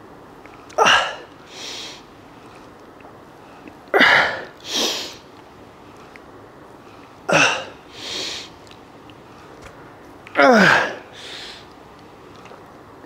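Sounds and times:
man breathing hard: 0.8s - 2.1s, 7.3s - 8.6s, 10.5s - 11.7s
hissing breath: 1.5s - 2.1s, 3.5s - 5.2s, 7.9s - 8.6s, 11.1s - 11.7s.

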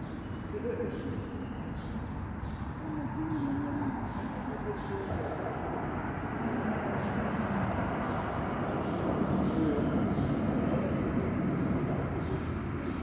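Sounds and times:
distant engine rumble: 0.0s - 13.0s.

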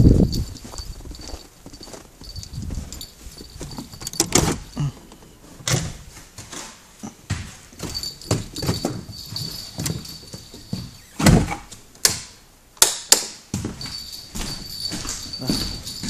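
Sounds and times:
quiet rustling: 0.0s - 11.9s
knocks clicks and scuffs: 0.1s - 16.0s.

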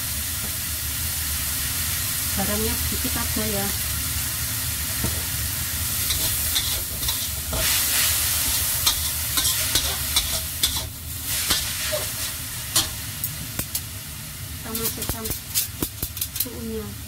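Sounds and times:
vegetables sizzling in a wok: 0.0s - 17.0s
metal spatula scraping a pan: 6.0s - 13.0s.

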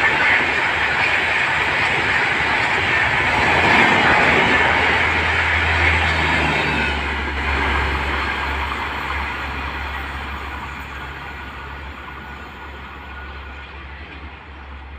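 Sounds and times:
train wheels rushing on rails: 0.0s - 14.9s.

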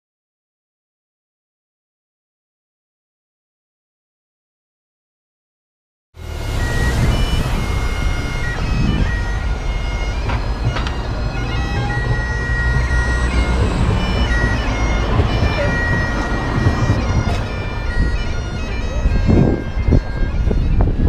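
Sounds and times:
bagpipes playing: 6.2s - 21.0s
street traffic rumble: 6.2s - 21.0s.

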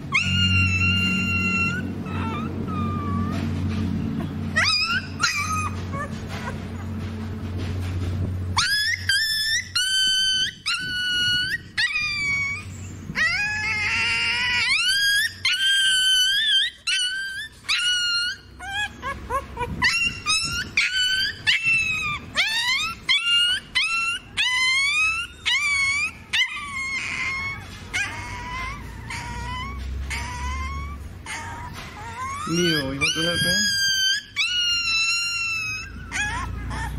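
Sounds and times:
puppy whining yelps: 0.0s - 36.9s.

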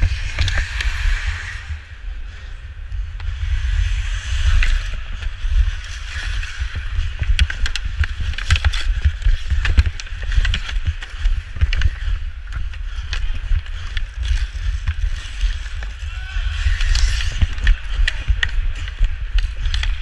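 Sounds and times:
skate blades scraping ice: 0.0s - 1.9s, 3.3s - 20.0s
low rumble: 0.0s - 20.0s
sticks and puck clacking: 4.5s - 20.0s.

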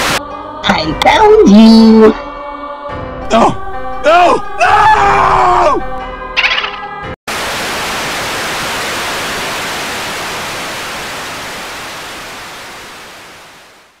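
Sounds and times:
television static hiss: 7.3s - 14.0s.

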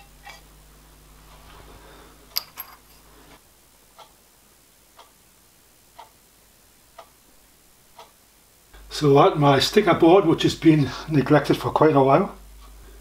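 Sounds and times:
clock ticking: 3.9s - 4.2s, 4.9s - 5.2s, 5.9s - 6.2s, 7.9s - 8.2s.

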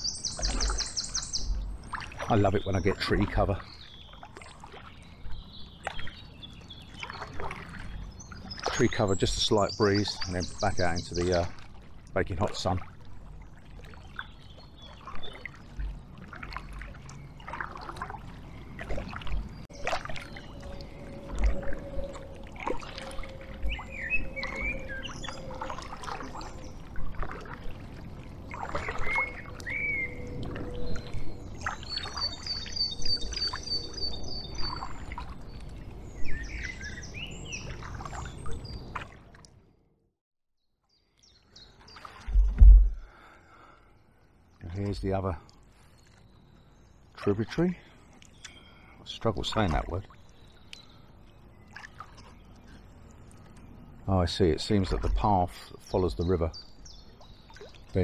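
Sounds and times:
songbirds calling: 0.0s - 39.6s, 40.8s - 58.0s
paddle splashing in water: 6.9s - 9.1s, 10.2s - 33.7s, 34.6s - 39.5s, 41.7s - 43.4s, 51.7s - 52.4s
water dripping: 18.8s - 36.8s
low thump: 42.3s - 43.1s.

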